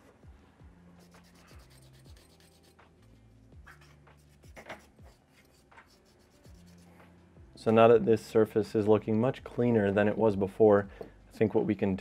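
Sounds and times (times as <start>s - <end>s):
quiet background music with beat: 0.0s - 12.0s
cotton swab scratchy rubbing: 0.9s - 7.2s.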